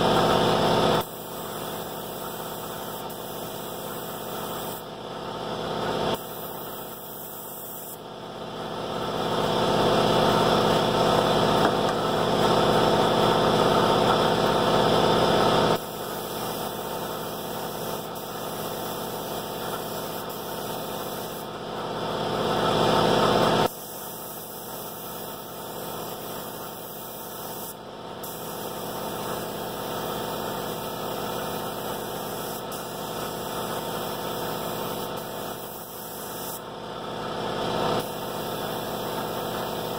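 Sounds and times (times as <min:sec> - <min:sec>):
air compressor hum: 0:00.0 - 0:39.9
paint spray gun hissing: 0:00.2 - 0:04.9, 0:06.1 - 0:08.0, 0:15.7 - 0:21.6, 0:23.6 - 0:36.7, 0:37.9 - 0:39.9.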